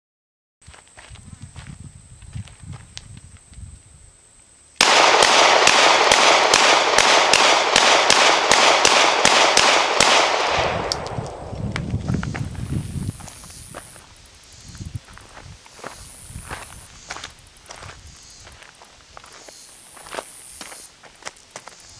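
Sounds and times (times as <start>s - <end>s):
pistol shots fired rapidly: 4.8s - 11.5s.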